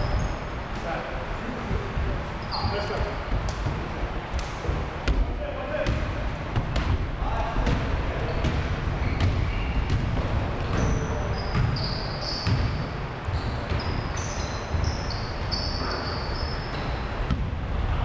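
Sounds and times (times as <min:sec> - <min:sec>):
sneaker squeaks: 0:00.0 - 0:01.0, 0:02.2 - 0:03.7, 0:07.7 - 0:17.4
basketball bouncing on wooden floor: 0:04.6 - 0:16.1.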